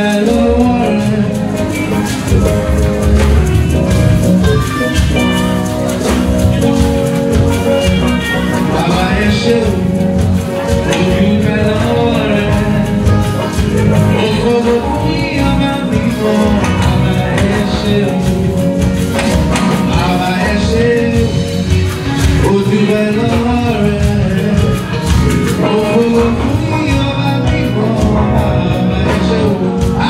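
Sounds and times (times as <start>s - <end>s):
band with steady beat: 0.0s - 30.0s
man singing through microphone: 0.0s - 30.0s.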